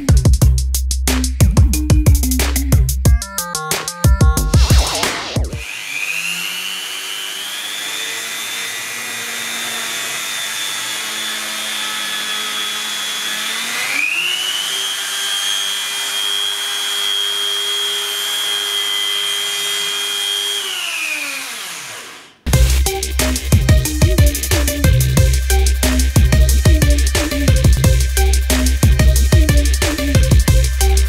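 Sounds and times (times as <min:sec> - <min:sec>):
rotary multi-tool motor whining: 0:05.6 - 0:22.5.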